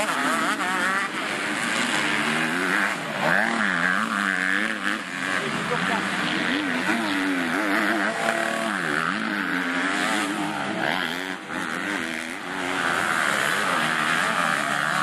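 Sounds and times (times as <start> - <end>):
motocross bike engines revving: 0.0 - 15.0.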